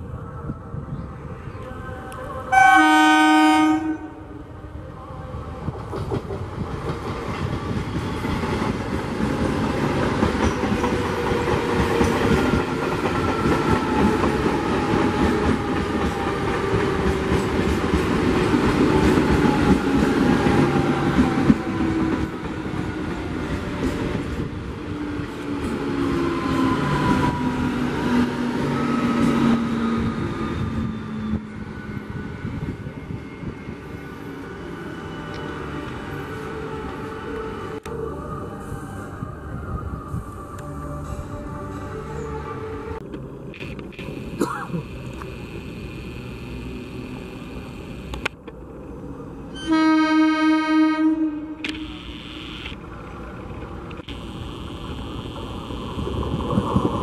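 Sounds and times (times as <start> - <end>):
train horn blast: 2.5 - 4.4, 49.6 - 52.6
train motor whine: 43.6 - 48.4, 50.6 - 53.0, 53.8 - 57.0.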